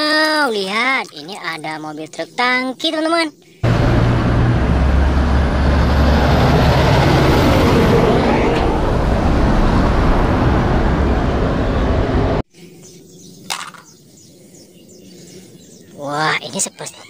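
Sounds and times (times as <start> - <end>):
road traffic: 3.6 - 12.4
truck diesel engine: 3.6 - 12.4.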